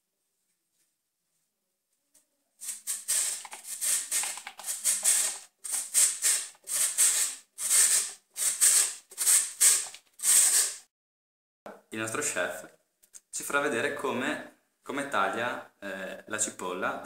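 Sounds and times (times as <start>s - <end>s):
potato rasping on metal grater: 2.6s - 10.8s.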